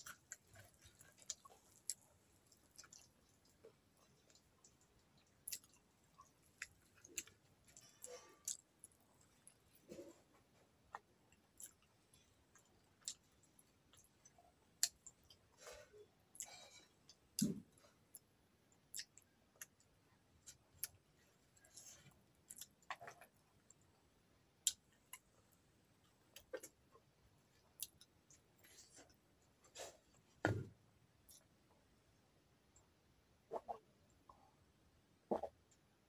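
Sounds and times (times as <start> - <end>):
person chewing with mouth clicks: 0.0 - 10.1, 10.9 - 15.4, 16.0 - 19.8, 21.6 - 23.8.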